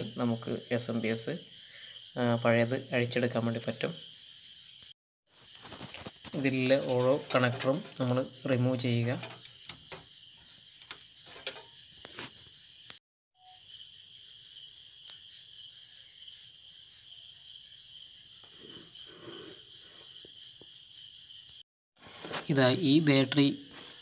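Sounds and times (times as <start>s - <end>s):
crickets chirping: 0.0s - 24.0s
cable connectors clicking: 8.9s - 10.0s.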